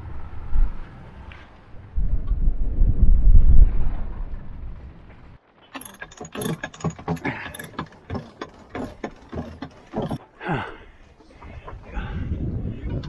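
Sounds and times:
ratchet clicking of deck hardware: 5.7 - 10.2.

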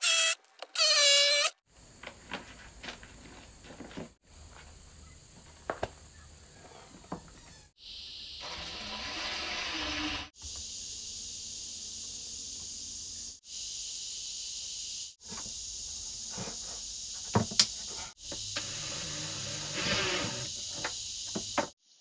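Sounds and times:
chorus of evening insects: 10.4 - 22.0.

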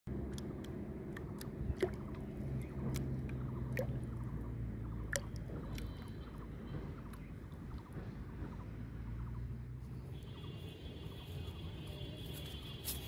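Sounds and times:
water sloshing and lapping: 0.1 - 8.8
low steady hum: 0.1 - 11.9
drip-like plinks: 0.2 - 7.9
small splashes: 0.3 - 6.3.

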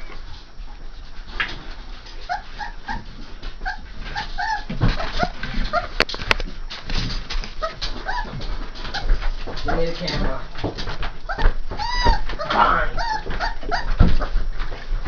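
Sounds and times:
puppies scuffling: 0.0 - 15.0
puppies whimpering: 2.2 - 6.0, 7.5 - 10.0, 11.2 - 14.4.

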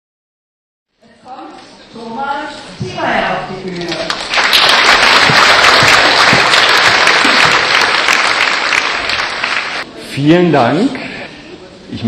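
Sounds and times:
audience applauding: 3.8 - 9.8.

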